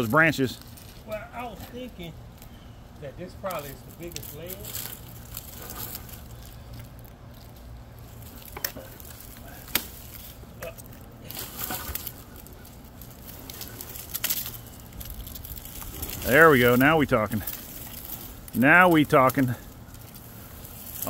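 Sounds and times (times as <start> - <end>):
pine branches rustling and crackling: 0.0 - 21.0
low steady rumble: 0.1 - 21.0.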